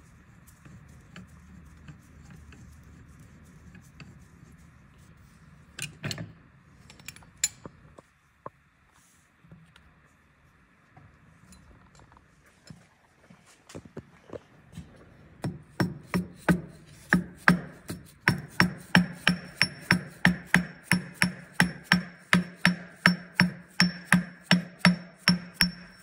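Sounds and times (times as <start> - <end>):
hammer blows with metallic ring: 15.4 - 26.0.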